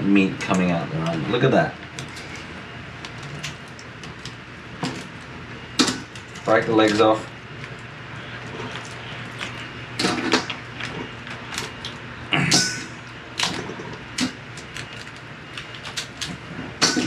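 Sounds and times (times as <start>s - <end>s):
crab shells cracking and snapping: 13.4s - 16.4s.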